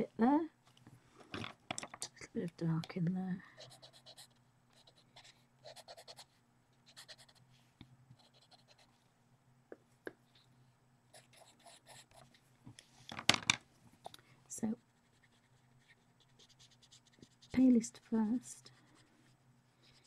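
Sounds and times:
pencil scratching on paper: 3.6 - 7.4, 8.2 - 8.9, 11.2 - 12.3, 14.8 - 17.7, 18.6 - 20.0.

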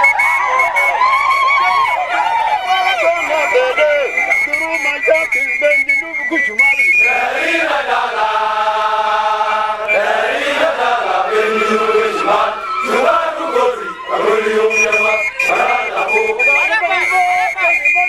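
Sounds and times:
soldiers chanting together: 7.0 - 17.0
steady high tone: 9.2 - 18.0.

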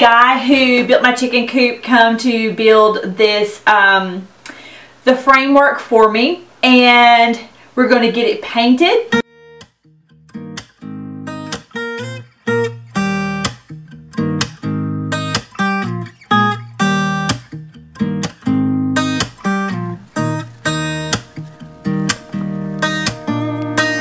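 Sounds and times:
acoustic guitar strumming chords: 9.1 - 24.0.

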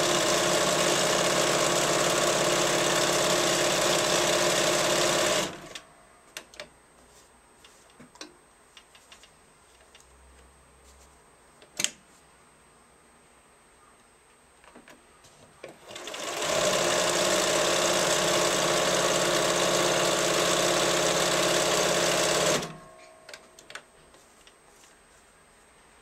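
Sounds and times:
sewing machine stitching: 0.0 - 5.8, 15.7 - 22.9.

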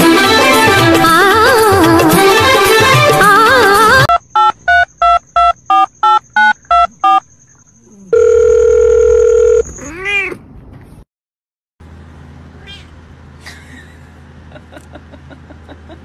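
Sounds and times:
music: 0.0 - 4.1
steady telephone tone: 4.1 - 7.2, 8.1 - 9.7
telephone keypad beeps: 4.1 - 7.2, 8.2 - 9.7.

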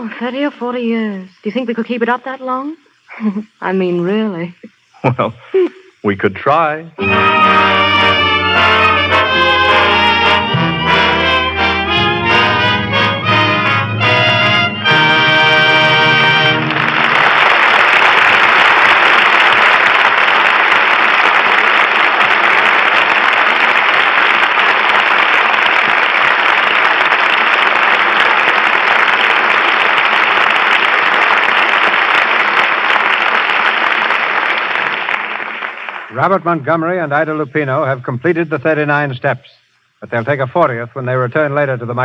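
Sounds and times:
orchestra chord: 7.0 - 17.7
audience applauding: 7.0 - 36.9.

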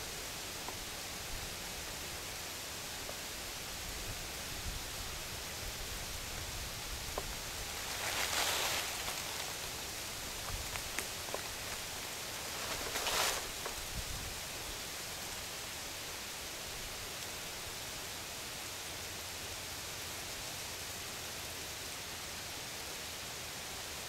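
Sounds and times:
steady hiss: 0.0 - 24.0
dry leaves rustling: 5.8 - 17.8.

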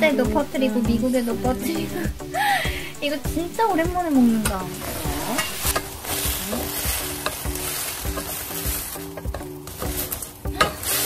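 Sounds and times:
sauce sizzling in a pan: 4.7 - 11.0.

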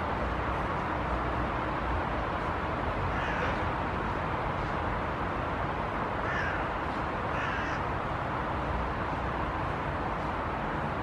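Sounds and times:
crow cawing: 3.1 - 3.6, 6.2 - 6.6, 7.3 - 7.9.

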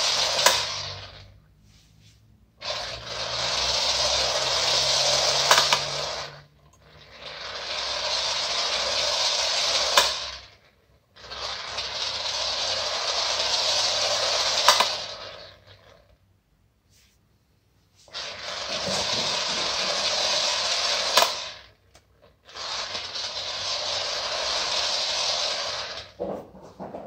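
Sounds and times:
clockwork spring motor whirring: 0.0 - 1.4, 2.6 - 16.2, 18.1 - 26.2
sharp toy click: 3.6 - 6.0, 8.8 - 10.4, 13.2 - 15.2, 20.1 - 22.0.

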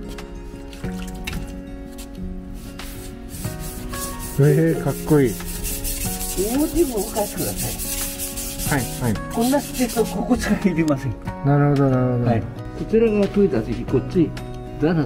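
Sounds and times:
knife scraping on whetstone: 2.0 - 10.4.

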